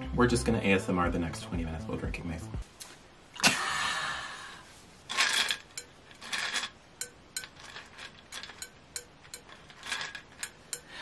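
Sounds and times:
cocktail shaker rattling: 0:05.1 - 0:11.0.

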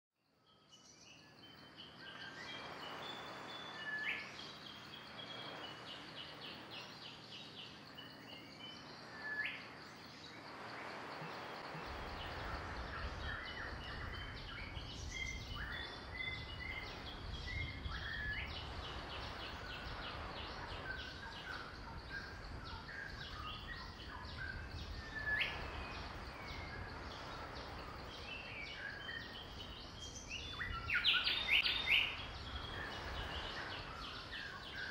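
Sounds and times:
birds chirping and whistling: 0:13.0 - 0:20.0, 0:28.3 - 0:34.9.

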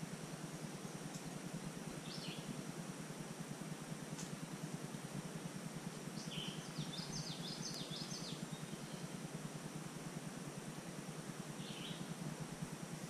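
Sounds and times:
low background hum: 0:00.0 - 0:13.0
songbird singing: 0:00.7 - 0:02.7, 0:04.1 - 0:09.6, 0:10.7 - 0:13.0.

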